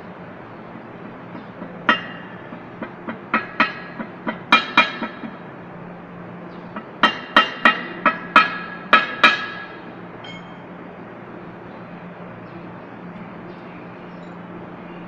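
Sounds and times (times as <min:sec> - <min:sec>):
hammer striking metal: 0:01.6 - 0:05.4, 0:06.8 - 0:10.6.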